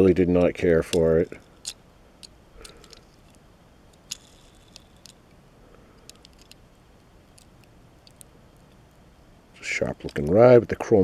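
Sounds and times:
low steady hum: 0:00.0 - 0:11.0
toy clicks and rubs in fingers: 0:04.0 - 0:05.2, 0:06.0 - 0:06.6.

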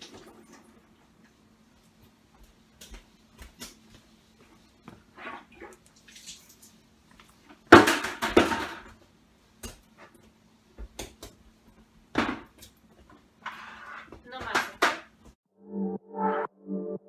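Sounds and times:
household objects clattering: 0:07.7 - 0:09.0.

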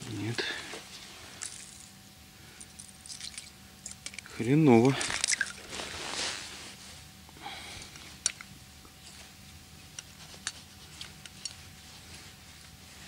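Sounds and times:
soft rustle: 0:05.6 - 0:07.2, 0:08.9 - 0:13.0.

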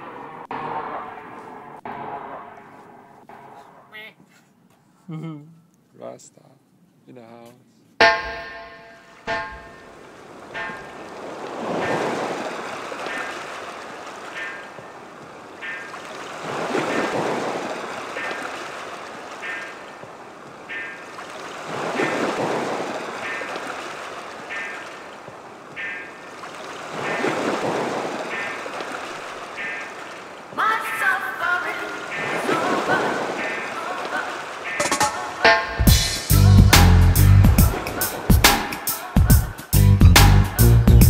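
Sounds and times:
waves washing in: 0:08.0 - 0:39.8.

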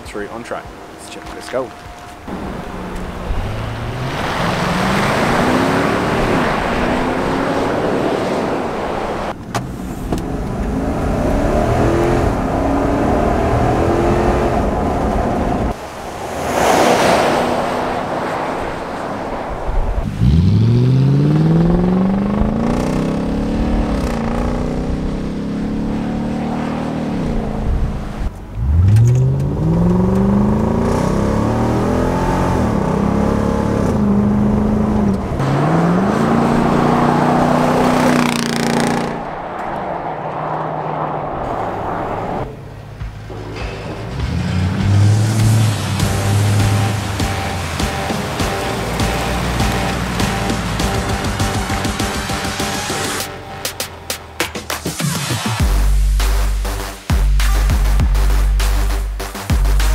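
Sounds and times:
engine accelerating through gears: 0:02.3 - 0:15.8, 0:20.1 - 0:42.5, 0:44.0 - 0:53.3.

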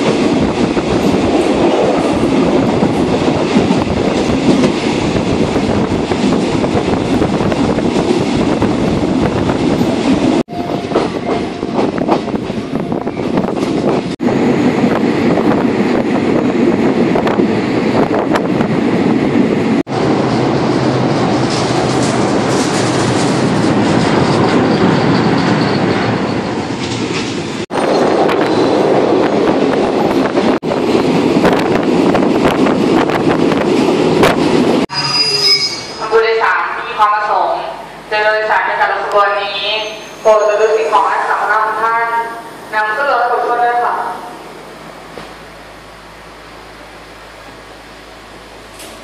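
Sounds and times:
train wheels rumbling and rattling: 0:00.0 - 0:41.8, 0:44.3 - 0:49.0
clicks of train wheels: 0:48.7 - 0:49.0.

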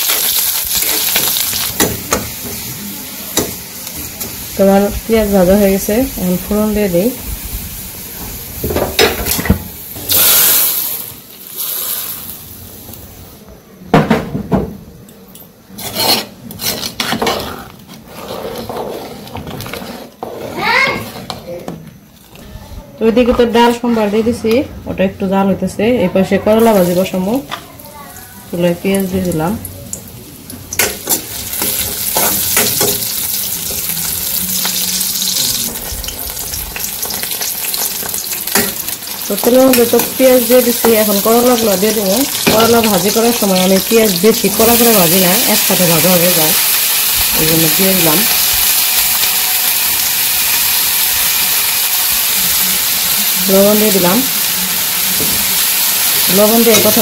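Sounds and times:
onions sizzling in oil: 0:00.0 - 0:13.4, 0:26.1 - 0:57.0
loud hiss of hot oil: 0:06.2 - 0:13.3, 0:44.6 - 0:57.0
metal ladle scraping pot: 0:15.7 - 0:21.4
metal spoon scraping a pan: 0:15.7 - 0:21.5, 0:23.7 - 0:24.5, 0:30.8 - 0:36.0, 0:56.3 - 0:57.0.

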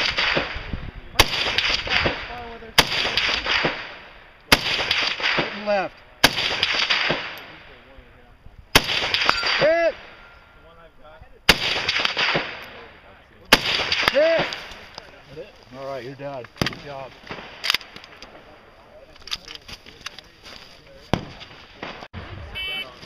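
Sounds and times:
rifle shots echoing: 0:00.0 - 0:07.8, 0:08.7 - 0:10.4, 0:11.5 - 0:14.9, 0:16.6 - 0:18.6.

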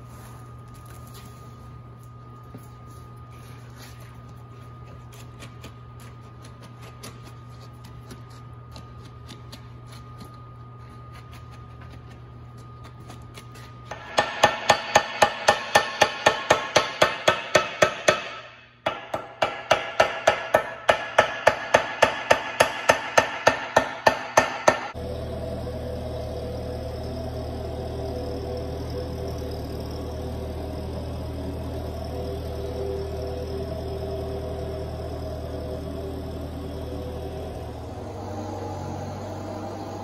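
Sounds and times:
steady low hum: 0:00.0 - 0:40.0
hammer tapping steel rim: 0:13.9 - 0:25.0.

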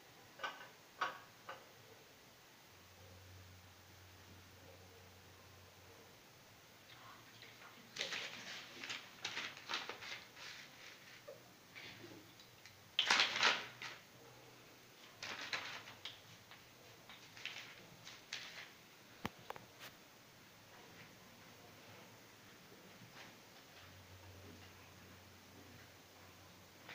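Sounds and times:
puppies scuffling on tile floor: 0:07.4 - 0:12.0.

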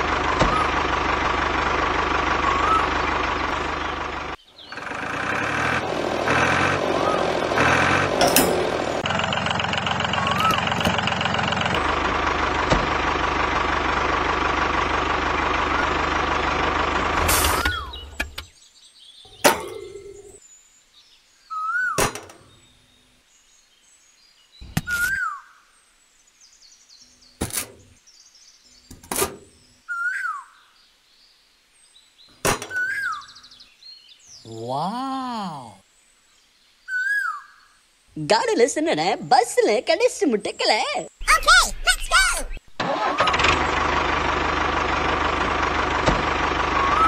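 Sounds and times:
tractor engine running: 0:00.0 - 0:18.5, 0:19.3 - 0:20.4, 0:41.2 - 0:47.0
bird chirp: 0:02.4 - 0:05.0, 0:10.1 - 0:11.0, 0:17.6 - 0:37.9, 0:40.0 - 0:42.7.

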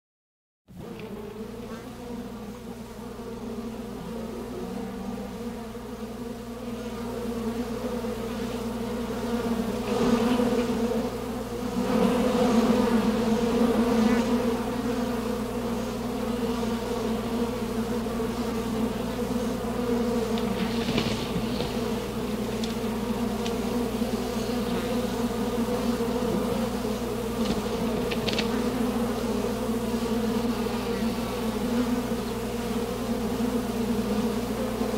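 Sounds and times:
low buzzing drone: 0:00.7 - 0:34.9
faint crackles: 0:20.3 - 0:23.7, 0:27.4 - 0:28.8.

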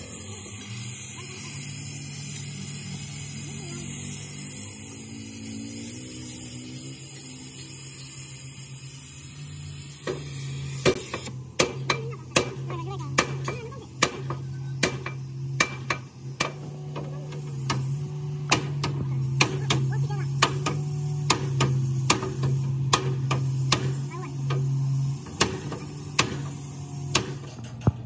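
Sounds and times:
sledgehammer striking steel: 0:10.0 - 0:16.7, 0:17.6 - 0:27.9.

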